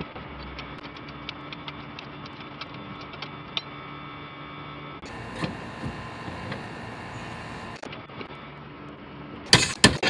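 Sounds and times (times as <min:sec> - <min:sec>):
steady low hum: 0:04.9 - 0:07.9.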